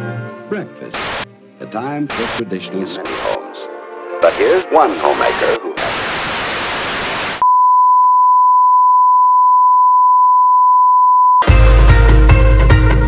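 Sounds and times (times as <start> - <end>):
static hiss: 0.9 - 1.3, 2.1 - 2.4, 3.0 - 3.4, 4.2 - 7.4
steady test tone beep: 7.4 - 11.5.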